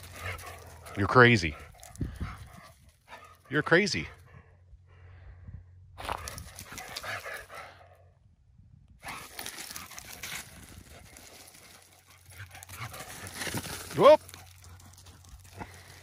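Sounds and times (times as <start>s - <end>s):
dog paws scrabbling on dirt: 0.0s - 3.8s, 6.0s - 7.7s, 9.0s - 16.0s.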